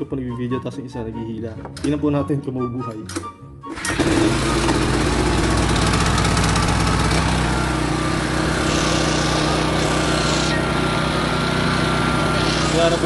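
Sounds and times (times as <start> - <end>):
generator engine starting and running: 3.2 - 13.0.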